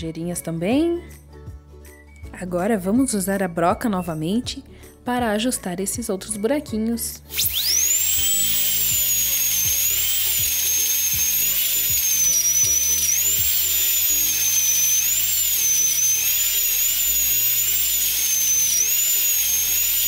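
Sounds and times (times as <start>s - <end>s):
background music: 0.0s - 19.6s
dentist's drill whine: 7.2s - 20.0s.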